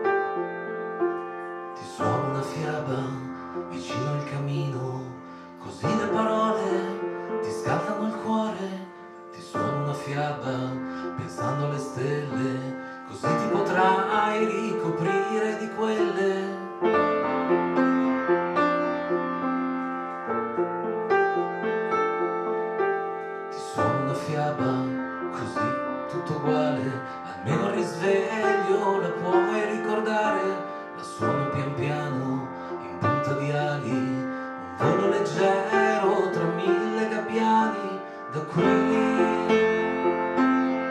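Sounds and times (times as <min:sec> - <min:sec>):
piano: 0:00.0 - 0:40.9
man singing: 0:01.8 - 0:17.0, 0:23.5 - 0:40.9.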